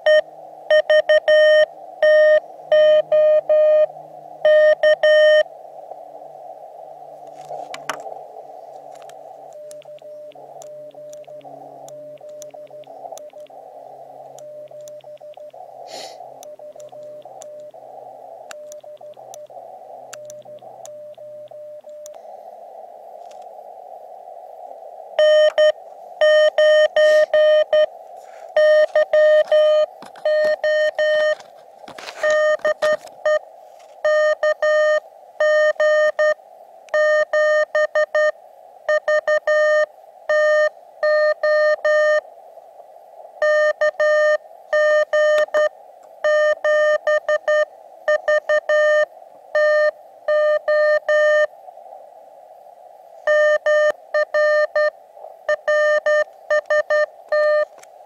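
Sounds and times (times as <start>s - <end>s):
morse code beeps: 0.0s - 5.4s, 9.6s - 13.5s, 14.4s - 15.6s, 16.4s - 17.7s, 25.2s - 27.9s, 28.6s - 33.4s, 34.0s - 42.2s, 43.4s - 51.5s, 53.3s - 54.9s, 55.5s - 57.7s
radio receiver hiss: 0.0s - 58.0s.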